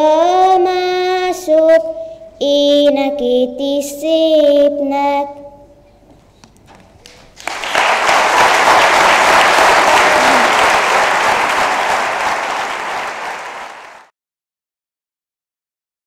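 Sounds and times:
audience applauding: 0:07.0 - 0:14.1.

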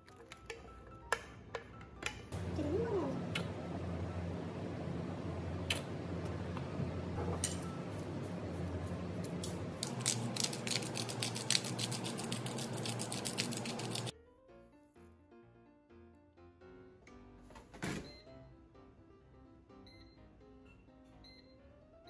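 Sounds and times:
pepper grinder clicking: 0:09.2 - 0:14.1.

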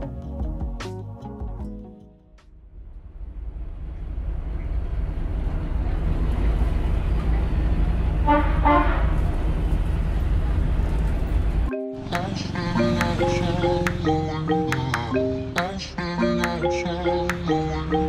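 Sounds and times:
vehicle rumble from inside: 0:02.6 - 0:08.2, 0:09.0 - 0:18.0
vehicle horn: 0:08.2 - 0:09.2
music with mallet notes: 0:11.7 - 0:18.0.

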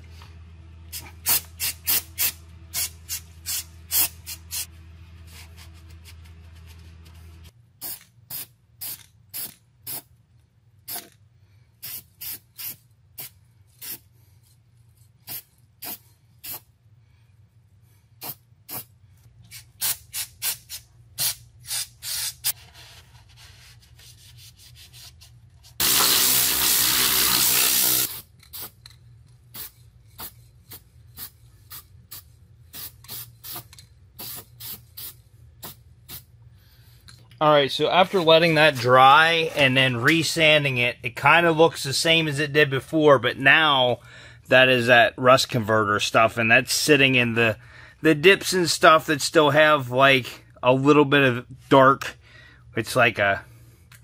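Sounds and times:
low steady hum: 0:00.0 - 0:11.8
aerosol spray can spraying: 0:25.8 - 0:28.8, 0:29.5 - 0:36.3.

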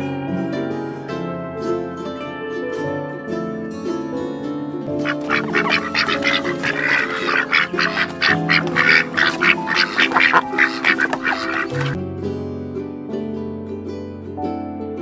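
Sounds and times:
plucked string music: 0:00.0 - 0:15.0
ducklings peeping: 0:04.9 - 0:12.0.

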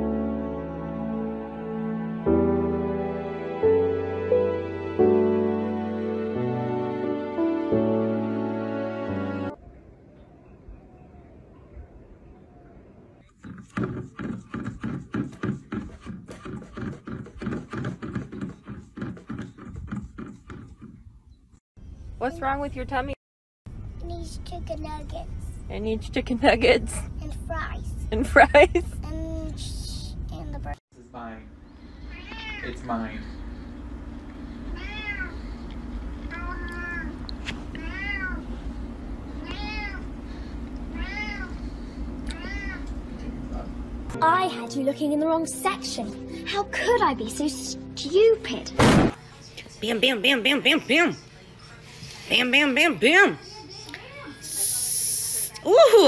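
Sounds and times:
steady low hum: 0:23.7 - 0:44.2
cat meowing: 0:32.1 - 0:32.8, 0:34.7 - 0:35.4, 0:36.3 - 0:38.5, 0:39.4 - 0:40.1, 0:40.9 - 0:41.6, 0:42.3 - 0:42.9.

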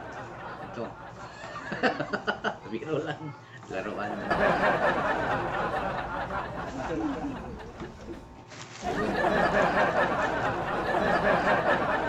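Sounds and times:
man laughing and talking: 0:06.6 - 0:07.9.

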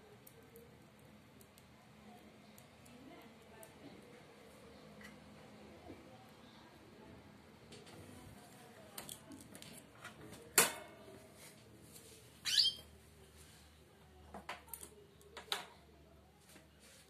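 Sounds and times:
bird chirp: 0:12.4 - 0:12.9.

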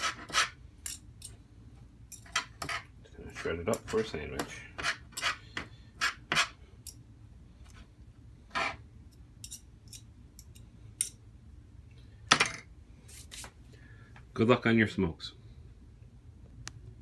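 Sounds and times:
fork scraping on plastic board: 0:00.0 - 0:00.6, 0:02.4 - 0:06.6, 0:08.5 - 0:08.8.

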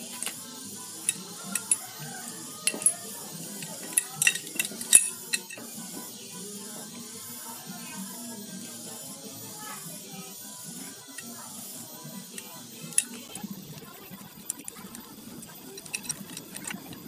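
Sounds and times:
metallic clinks and taps: 0:00.0 - 0:00.4, 0:01.0 - 0:05.6, 0:12.2 - 0:13.3.

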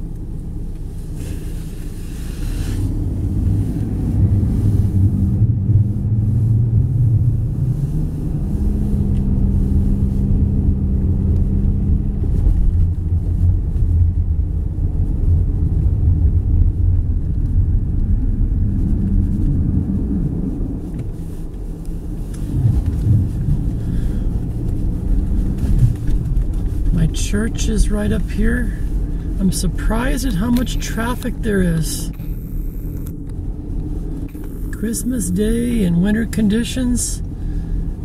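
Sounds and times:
car engine hum in cabin: 0:00.0 - 0:38.0
tyre rumble: 0:16.8 - 0:27.2.

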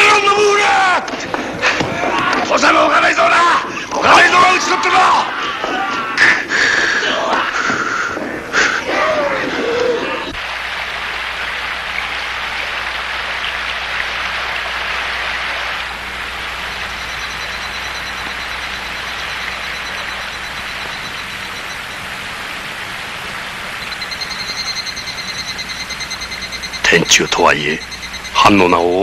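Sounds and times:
high pulsing chirp: 0:16.0 - 0:22.3, 0:23.6 - 0:29.0.

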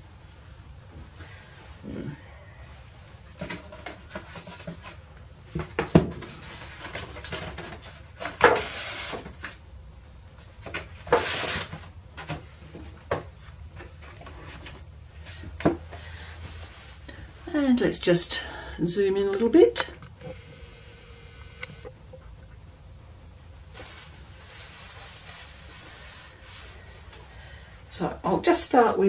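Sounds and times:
rustling: 0:23.6 - 0:27.7.

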